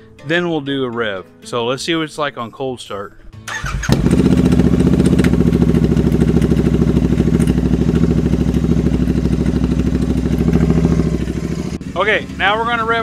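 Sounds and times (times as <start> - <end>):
motorcycle engine idling: 3.6 - 13.0.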